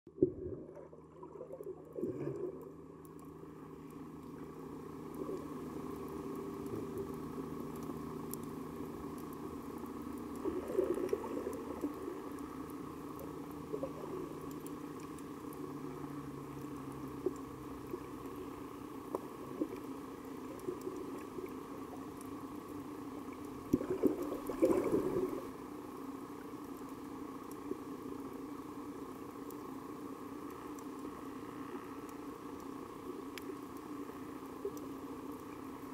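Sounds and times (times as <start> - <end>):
underwater low hum: 0.1 - 35.9
sharp clicks and crackles: 1.4 - 15.7, 16.5 - 22.5, 30.4 - 35.9
rushing water swell: 23.6 - 25.6.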